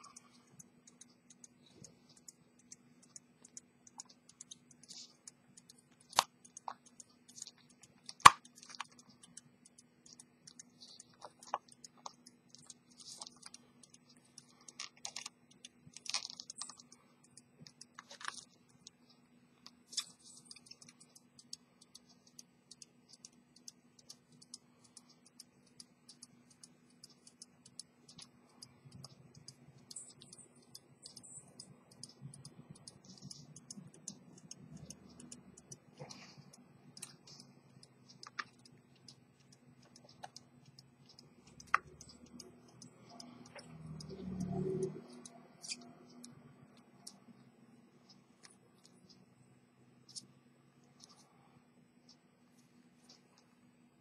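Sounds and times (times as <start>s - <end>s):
pocket watch parts clicking: 19.9s - 46.4s.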